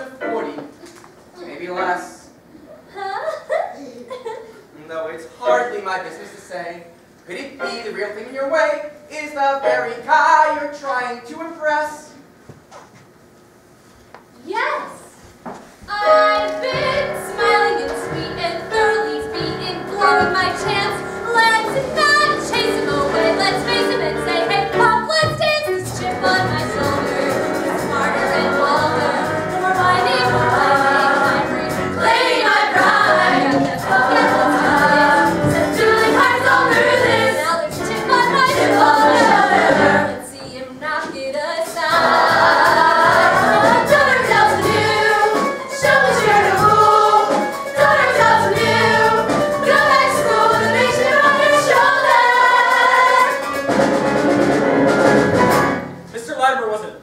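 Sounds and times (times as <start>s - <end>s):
woman singing: 15.9s - 32.4s
women's voices singing: 15.9s - 53.4s
live band with drums and keyboard: 16.0s - 40.0s, 41.9s - 56.2s.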